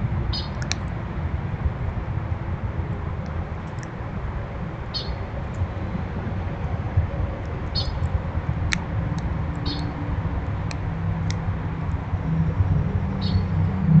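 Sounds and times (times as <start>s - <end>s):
steady low rumble: 0.0s - 14.0s
high bird chirps: 0.3s - 0.7s, 4.9s - 5.2s, 7.7s - 8.0s, 9.6s - 10.0s, 13.2s - 13.6s.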